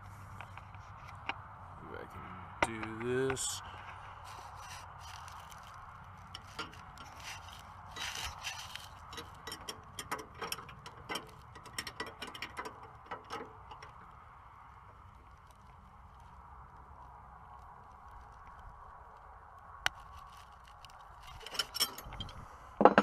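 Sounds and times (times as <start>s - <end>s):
wrenches clinking on metal: 6.4s - 13.5s, 21.2s - 23.0s.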